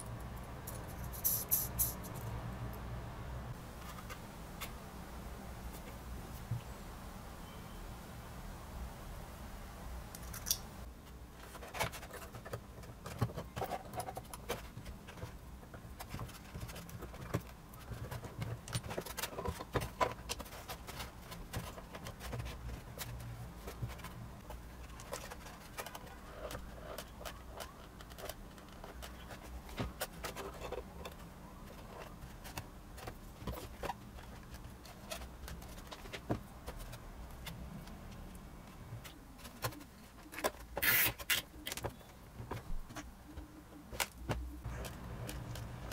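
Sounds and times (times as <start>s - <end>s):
hands clicking and tapping parts: 10.2s - 45.9s.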